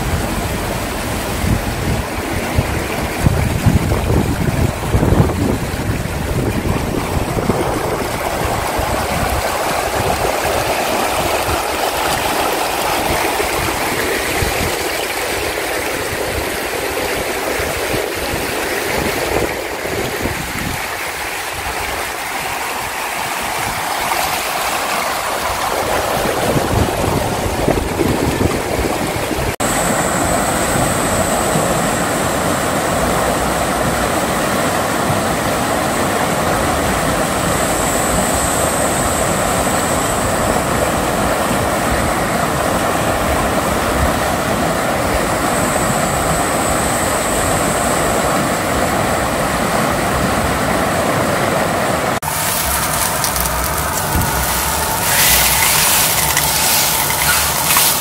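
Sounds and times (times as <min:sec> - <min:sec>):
stream running over stones: 0:00.0 - 0:44.2, 0:52.2 - 0:58.0
high-pitched whine: 0:29.2 - 0:41.4, 0:52.2 - 0:58.0.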